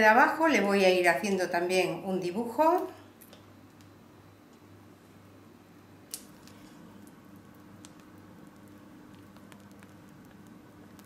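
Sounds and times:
faint steady hum: 0:00.0 - 0:11.0
piping bag squishing: 0:06.1 - 0:11.0.

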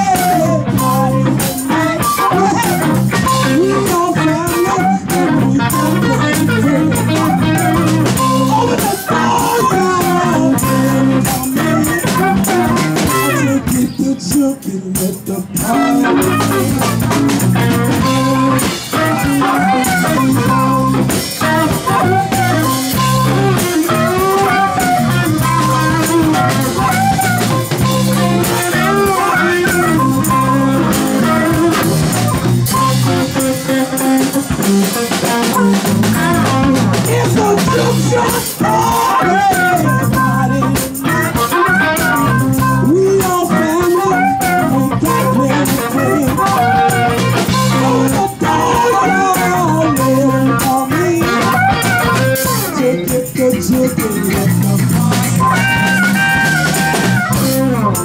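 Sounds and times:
electric blues band playing: 0:00.0 - 0:58.0
person singing: 0:00.0 - 0:58.0
tambourine: 0:15.0 - 0:58.0.

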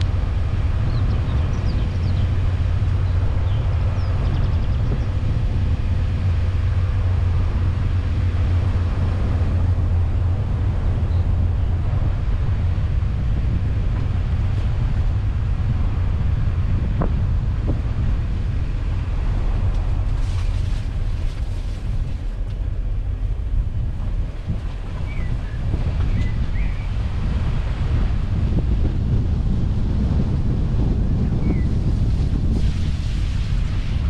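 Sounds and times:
car engine and tyres rumbling: 0:00.0 - 0:34.0
wind buffeting microphone: 0:00.0 - 0:34.0.

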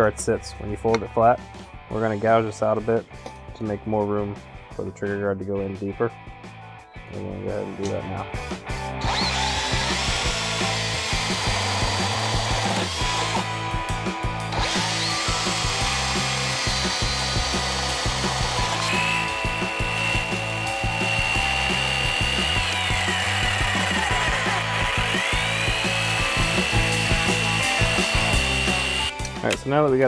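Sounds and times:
background music: 0:00.0 - 0:30.0
electric drill boring into wood: 0:08.7 - 0:13.6, 0:14.5 - 0:29.2.

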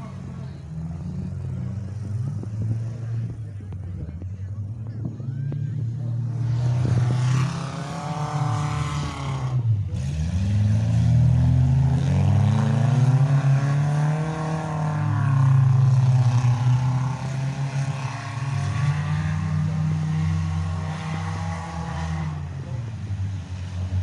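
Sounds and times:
car engines revving hard: 0:00.0 - 0:24.0.

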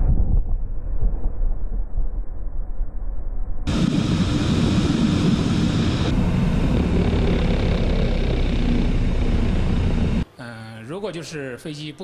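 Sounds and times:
hissing rush of air: 0:03.7 - 0:10.2
jet engine and airflow rumble: 0:03.7 - 0:10.3.

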